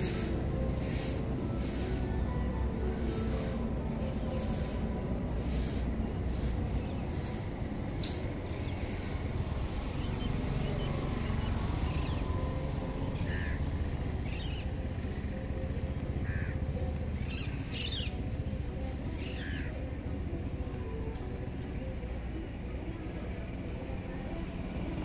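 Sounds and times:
bird call: 0:13.2 - 0:14.8, 0:17.2 - 0:18.2, 0:19.2 - 0:19.8.

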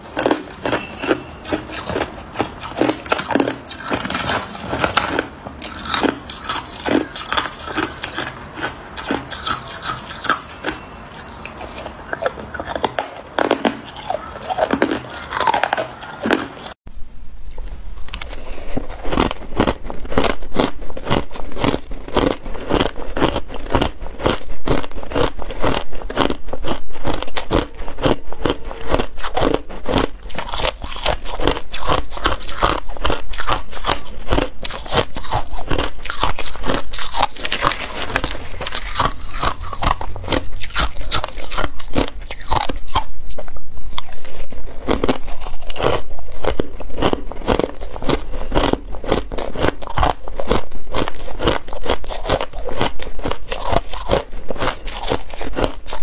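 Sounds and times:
crushed ice crunching: 0:18.3 - 0:43.1, 0:44.0 - 0:56.0.

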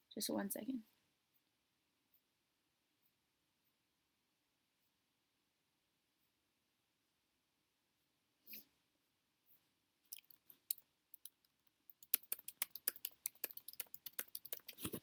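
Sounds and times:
laptop keyboard typing: 0:10.2 - 0:15.0.

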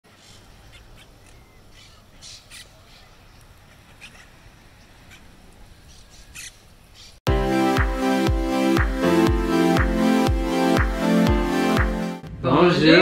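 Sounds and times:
parakeets squawking: 0:05.0 - 0:07.2.

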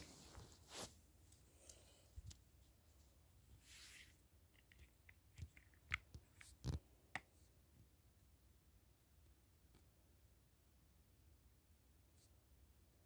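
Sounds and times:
bedding rustle: 0:00.0 - 0:01.3.

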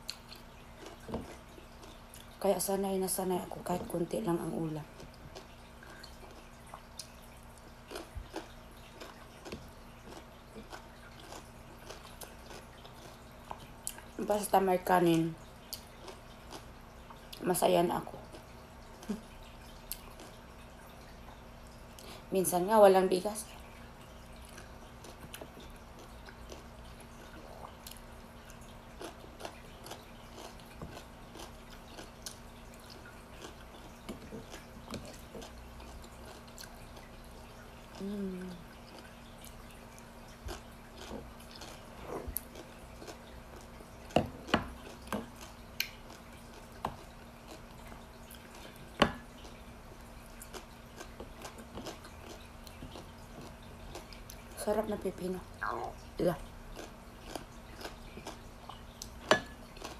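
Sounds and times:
soft chewing: 0:00.0 - 0:02.4, 0:04.8 - 0:14.2, 0:15.4 - 0:17.4, 0:18.0 - 0:22.3, 0:23.4 - 0:59.9
person humming: 0:38.0 - 0:38.6.

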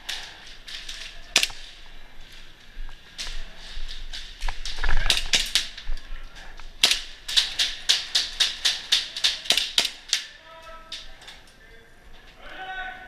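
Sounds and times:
airsoft guns firing: 0:00.1 - 0:01.8, 0:04.7 - 0:05.9, 0:06.7 - 0:11.0.

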